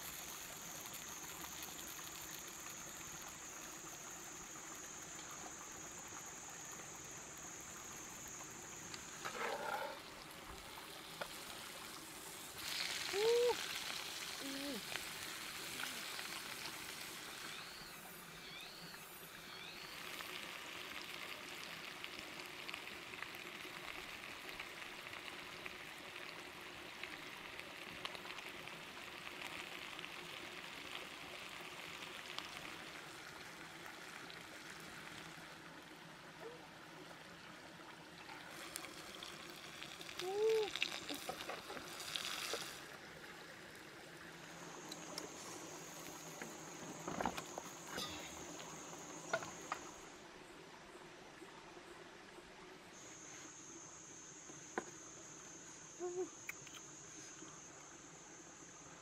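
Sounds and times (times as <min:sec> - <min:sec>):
sausage sizzling in a pan: 0:00.0 - 0:34.2, 0:38.5 - 0:42.9, 0:44.4 - 0:50.0.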